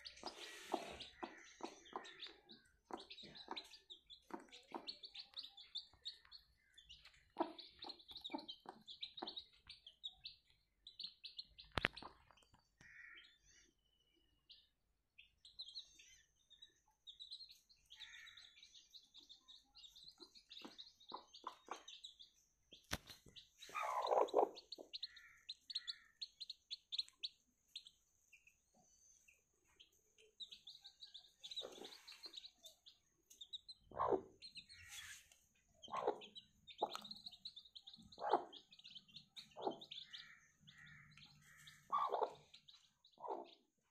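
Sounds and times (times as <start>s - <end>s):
hen clucking: 0.0s - 5.4s, 7.0s - 9.7s, 23.6s - 27.3s, 33.6s - 43.6s
chicks peeping: 0.0s - 13.2s, 17.0s - 43.9s.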